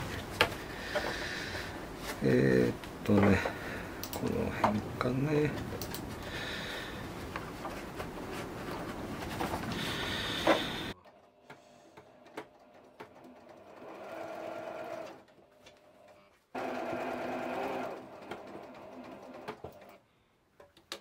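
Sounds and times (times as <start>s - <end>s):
sewing machine stitching: 12.0s - 15.3s, 16.6s - 20.0s.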